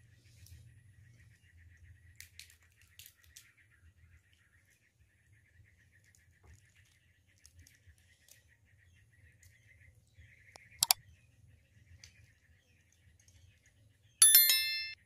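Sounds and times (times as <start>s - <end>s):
faint rapid chirping: 10.3s - 11.0s
sharp mouse click: 10.6s - 11.0s
bright bell ding: 14.2s - 15.0s.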